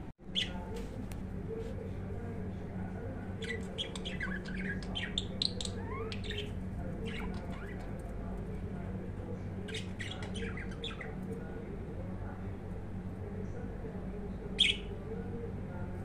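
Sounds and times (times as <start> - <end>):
steady low hum: 0.0 - 16.0
budgerigar chirping and warbling: 9.7 - 11.2, 14.6 - 14.9.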